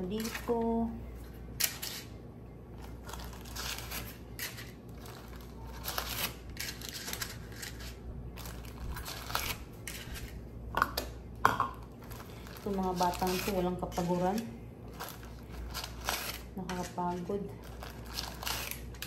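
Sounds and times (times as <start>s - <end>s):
paper cupcake liners rustling: 2.8s - 10.4s, 11.9s - 19.0s.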